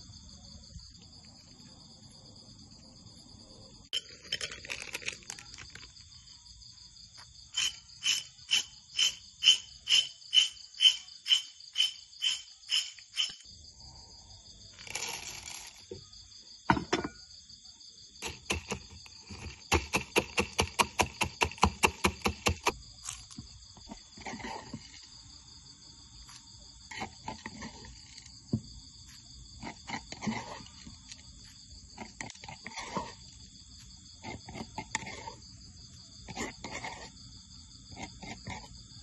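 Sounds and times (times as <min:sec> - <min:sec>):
crickets trilling: 0:00.0 - 0:39.0
pestle pounding in a mortar: 0:18.2 - 0:22.7.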